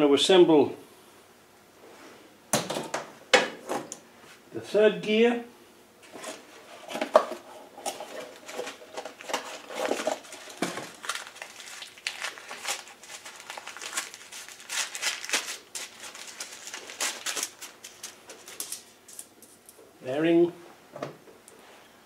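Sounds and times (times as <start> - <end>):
packaging crinkling and rustling: 7.9 - 19.6.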